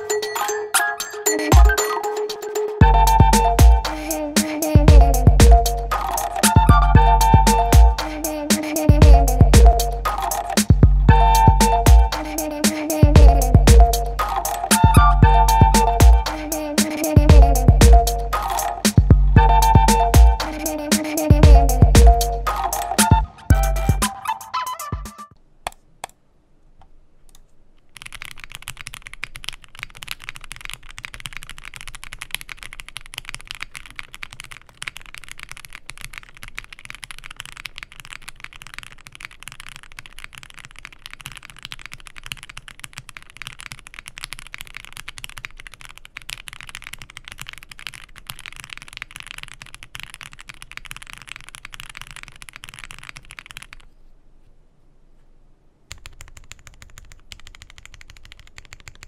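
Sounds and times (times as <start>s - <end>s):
fast typing on mechanical keyboard: 5.9s - 6.8s, 7.4s - 10.8s, 11.4s - 17.6s, 27.8s - 54.0s, 55.9s - 59.0s.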